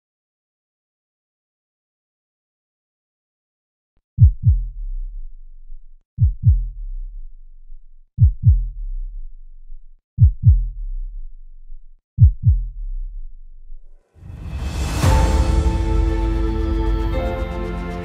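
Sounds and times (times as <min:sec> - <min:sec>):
heartbeat double thump: 0:04.2 - 0:04.8, 0:06.2 - 0:07.0, 0:08.2 - 0:09.0, 0:10.2 - 0:11.1, 0:12.2 - 0:13.2.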